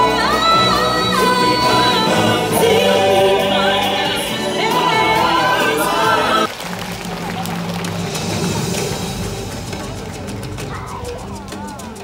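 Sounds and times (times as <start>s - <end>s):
choir singing held notes: 0.1s - 6.5s.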